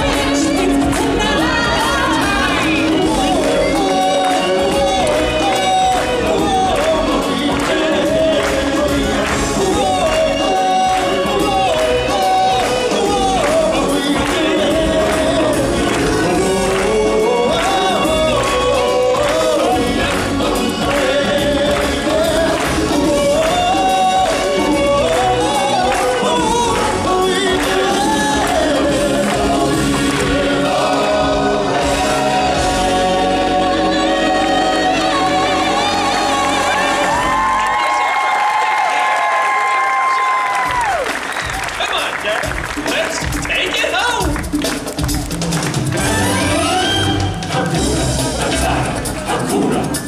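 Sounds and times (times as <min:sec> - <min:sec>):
backing band with steady beat: 0:00.0 - 0:37.8, 0:40.4 - 0:50.0
choir singing: 0:00.0 - 0:37.8, 0:46.0 - 0:50.0.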